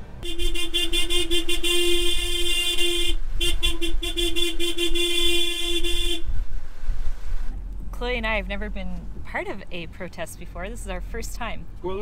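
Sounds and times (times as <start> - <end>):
truck and tractor engines rumbling: 0.0 - 12.0
vehicle horn blast: 0.2 - 6.4.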